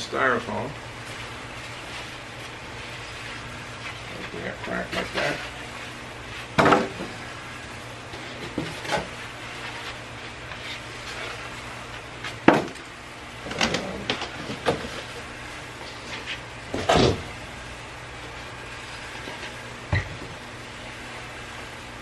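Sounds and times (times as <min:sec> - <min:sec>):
cardboard scraping and rustling: 0:01.1 - 0:05.7
knocks on cardboard box: 0:12.4 - 0:12.8.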